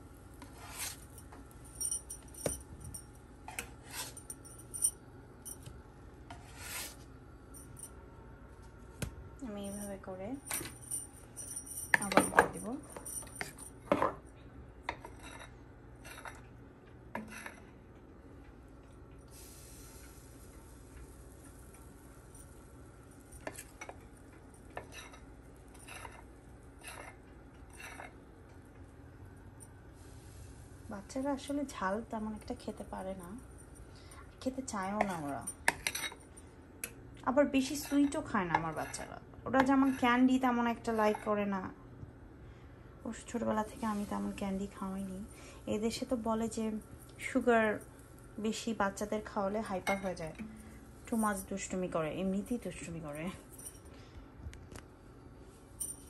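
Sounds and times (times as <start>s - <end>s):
spatula scraping frying pan: 0.4s - 1.0s
metal spoon clinking on bowl: 49.8s - 50.8s.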